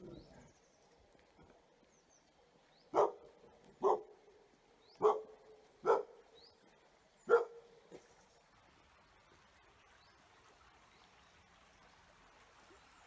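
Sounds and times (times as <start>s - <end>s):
dog barking: 2.9s - 4.2s, 5.0s - 6.2s, 7.3s - 7.7s.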